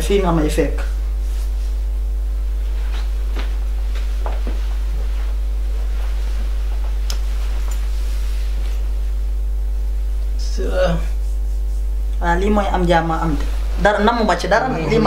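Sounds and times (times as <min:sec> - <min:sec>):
low mains hum: 0:00.0 - 0:15.0.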